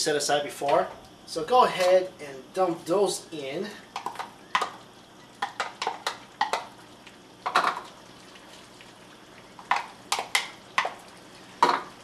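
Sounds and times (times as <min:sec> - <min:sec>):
plastic bowls knocking on spoon: 0:05.4 - 0:06.7.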